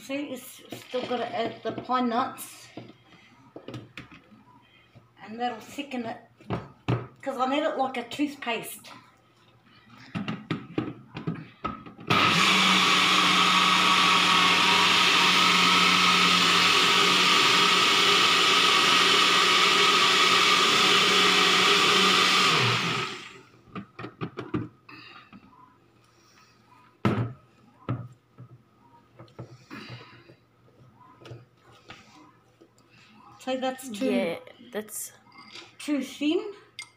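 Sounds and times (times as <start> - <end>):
blender motor running: 12.1 - 23.5.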